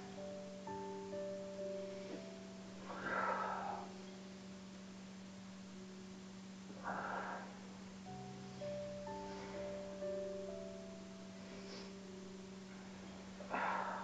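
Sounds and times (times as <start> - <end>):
woman breathing out: 1.9 - 4.1, 12.7 - 14.0.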